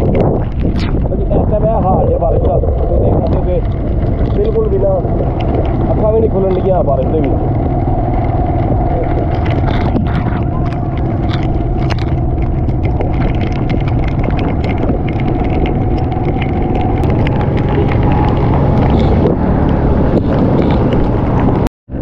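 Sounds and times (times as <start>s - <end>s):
raindrops clicking: 0.0s - 22.0s
traffic rumbling through water: 0.0s - 22.0s.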